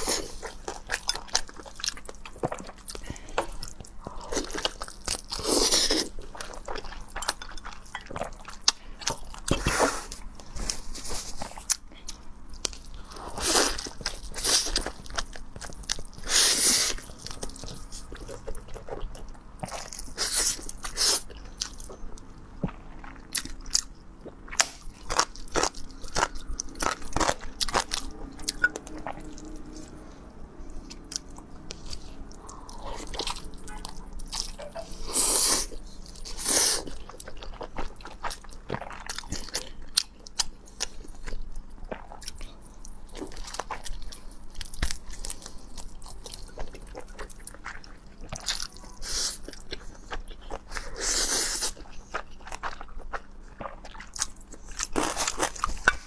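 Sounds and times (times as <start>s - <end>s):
biting and chewing food: 0.0s - 56.0s.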